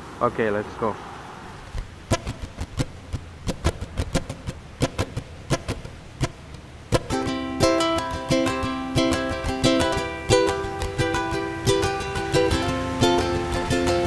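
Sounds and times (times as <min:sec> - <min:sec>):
sharp clicks and taps: 0:02.1 - 0:07.1
ukulele music: 0:02.1 - 0:14.0.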